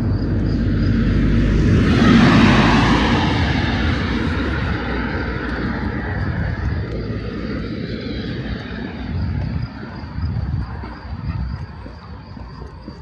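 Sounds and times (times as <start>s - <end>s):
motor vehicle passing: 0.0s - 13.0s.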